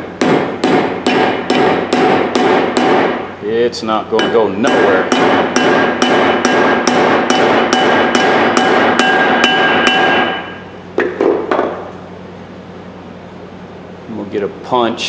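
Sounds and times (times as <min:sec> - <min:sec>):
hammer striking metal: 0:00.2 - 0:03.3, 0:04.2 - 0:10.7.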